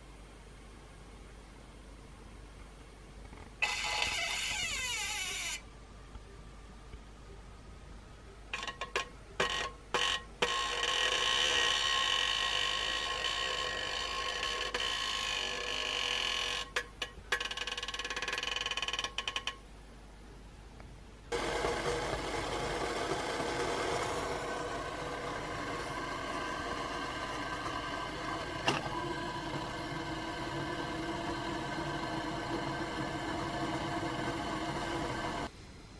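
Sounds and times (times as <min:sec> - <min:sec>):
water boiling in a mug: 0:21.3 - 0:35.5.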